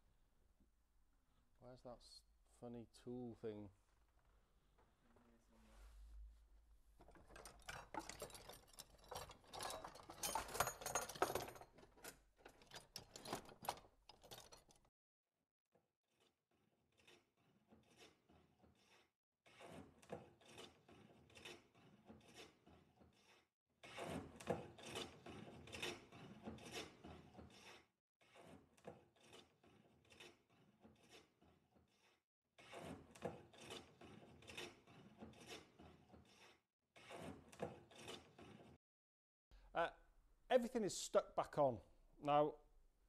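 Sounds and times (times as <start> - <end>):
faint rubbing and scraping strokes: 3.8 - 6.8.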